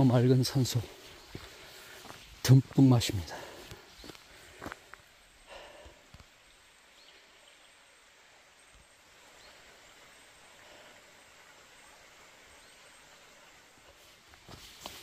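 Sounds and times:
faint hiss: 0:00.0 - 0:15.0
soft footfalls: 0:01.2 - 0:02.9.

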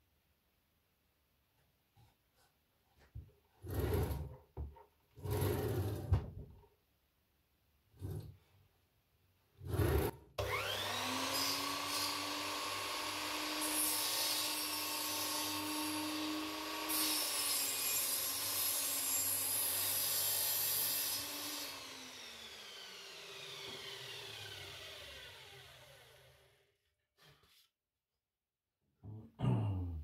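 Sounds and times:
saw blade cutting wood: 0:09.6 - 0:26.4
mitre saw motor whine: 0:10.4 - 0:11.9, 0:21.7 - 0:26.4.

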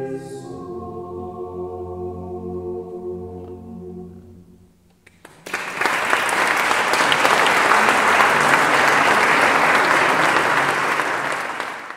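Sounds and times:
audience applauding: 0:05.0 - 0:11.9.

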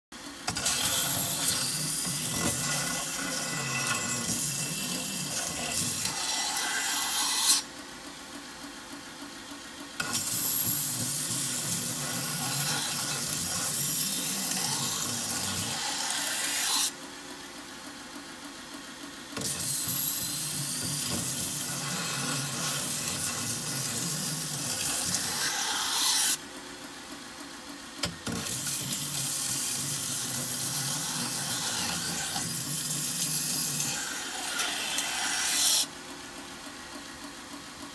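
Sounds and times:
belt sander running: 0:00.5 - 0:07.6, 0:10.0 - 0:16.9, 0:19.4 - 0:26.4, 0:28.3 - 0:35.9
metal hissing on sanding belt: 0:00.5 - 0:07.6, 0:10.0 - 0:16.9, 0:19.4 - 0:26.4, 0:28.4 - 0:35.9.

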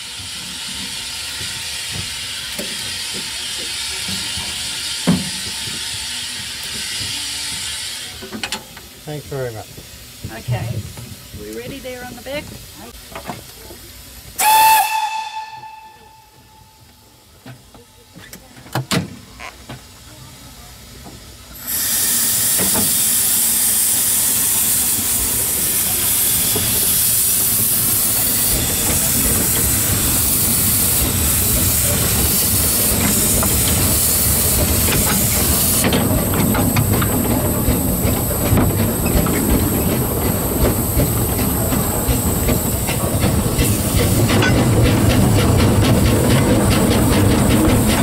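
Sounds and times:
steam hissing: 0:00.0 - 0:18.6, 0:19.2 - 0:48.0
steam locomotive whistle: 0:14.4 - 0:16.9.

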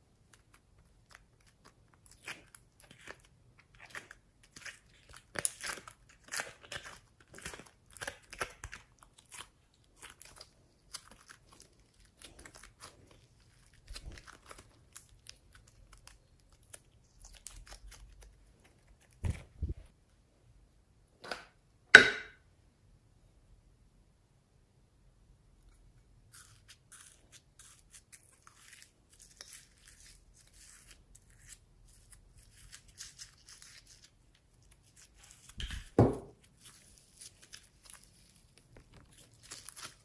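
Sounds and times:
clay being kneaded by hand: 0:00.0 - 0:20.3, 0:25.5 - 0:40.0.

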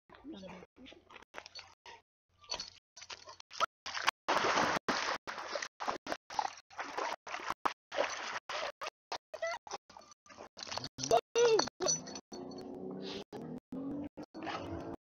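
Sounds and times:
dog splashing in water: 0:03.0 - 0:08.7.

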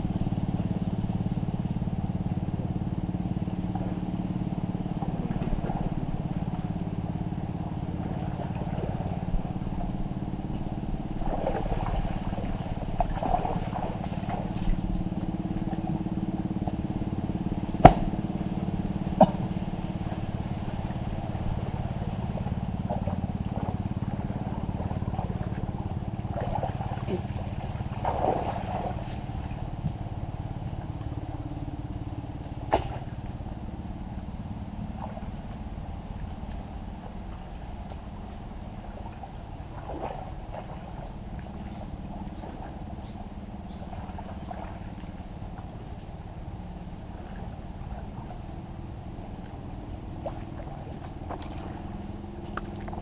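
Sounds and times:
small engine running: 0:00.0 - 0:40.0
sharp knocks: 0:17.8 - 0:18.2.

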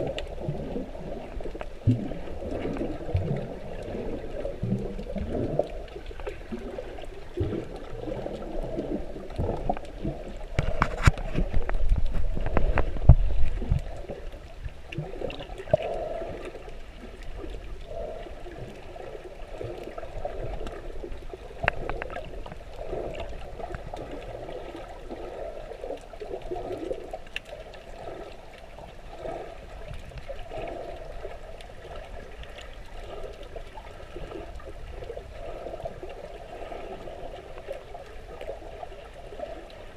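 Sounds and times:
underwater sloshing and bubbling: 0:00.0 - 0:39.9.

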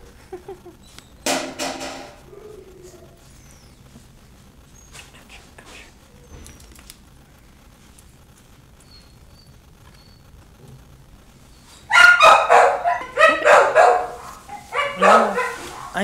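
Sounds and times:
puppy yipping: 0:11.9 - 0:16.0.

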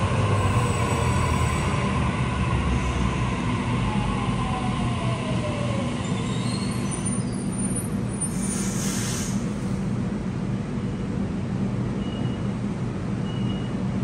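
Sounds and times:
air brake hiss: 0:08.2 - 0:09.8.

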